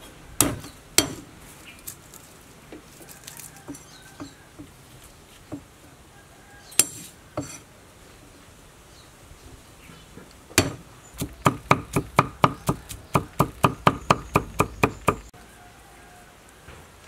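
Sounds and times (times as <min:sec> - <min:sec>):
cleaver chopping on wooden board: 0:00.4 - 0:01.2, 0:10.6 - 0:15.3.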